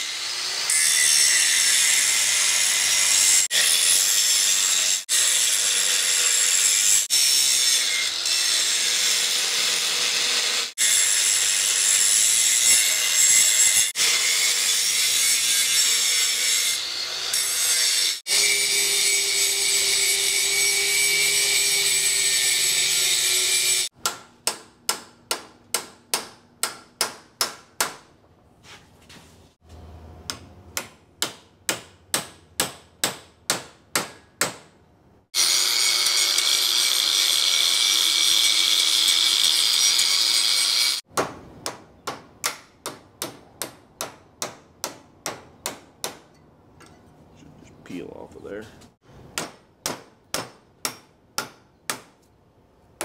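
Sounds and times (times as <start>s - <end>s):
power tool cutting steel: 0.0s - 23.9s, 35.4s - 41.1s.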